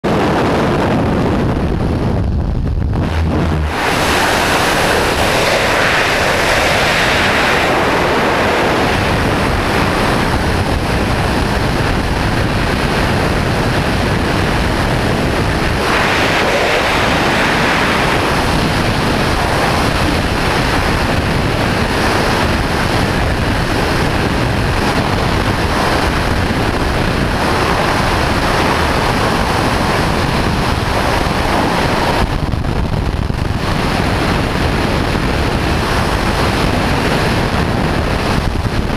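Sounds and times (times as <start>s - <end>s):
wind rushing across microphone: 0.0s - 38.9s.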